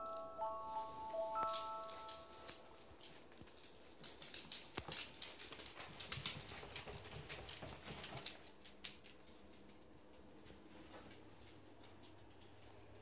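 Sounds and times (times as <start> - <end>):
dog claws clicking on wooden floor: 3.0 - 9.8.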